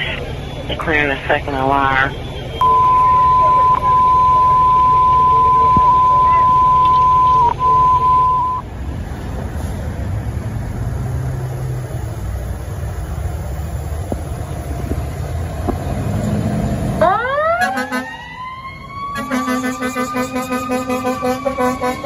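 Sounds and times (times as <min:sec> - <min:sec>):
radio alert tone: 0:00.0 - 0:08.6
fire engine motor running: 0:00.0 - 0:22.0
siren wailing: 0:01.8 - 0:08.6, 0:17.0 - 0:22.0.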